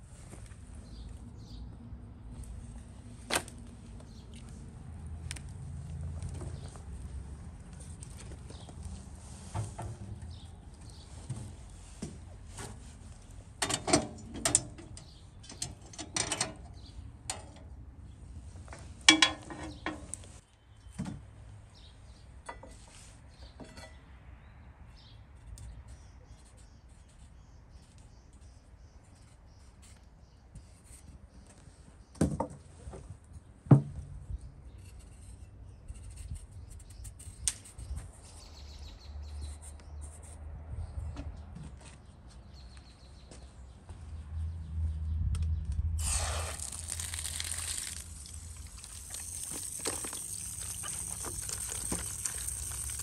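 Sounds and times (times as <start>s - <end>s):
firewood handled at metal fire box: 7.7s - 17.7s, 18.6s - 21.3s, 22.4s - 24.0s, 46.0s - 53.0s.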